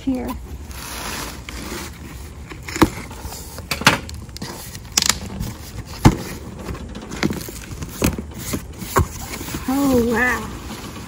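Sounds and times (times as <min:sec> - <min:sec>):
knocks and scrapes on box: 0:07.2 - 0:11.0.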